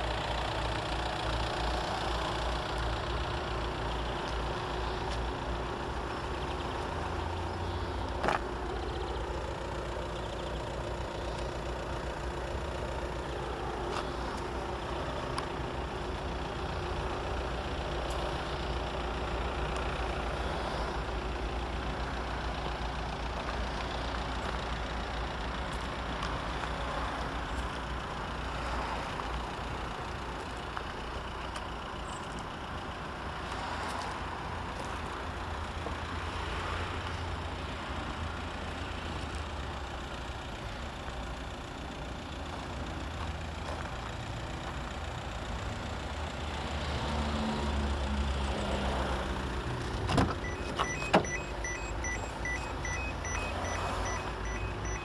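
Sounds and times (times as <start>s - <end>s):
car engine idling: 0.0s - 55.0s
car door opening clicks: 49.9s - 51.6s
fast warning beep: 50.4s - 55.0s.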